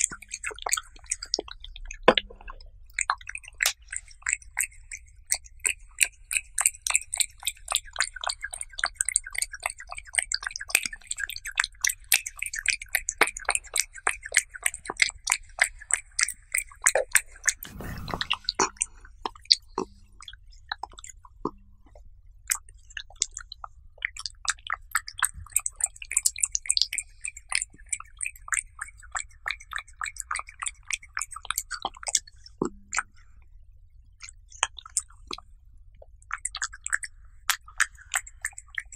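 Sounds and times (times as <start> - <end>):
soft thump: 17.7 - 18.5.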